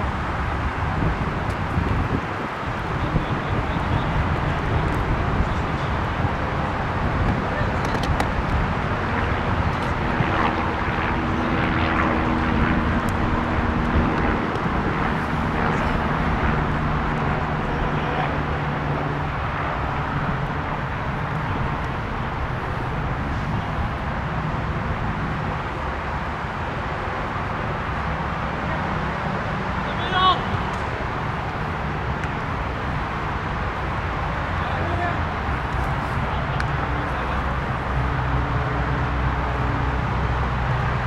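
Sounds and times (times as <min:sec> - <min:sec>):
constant rushing noise: 0:00.0 - 0:41.0
steady engine drone: 0:00.0 - 0:41.0.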